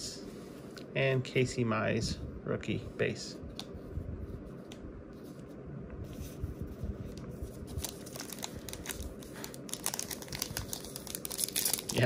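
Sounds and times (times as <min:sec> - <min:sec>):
card pack wrapper crinkling: 0:07.7 - 0:12.0.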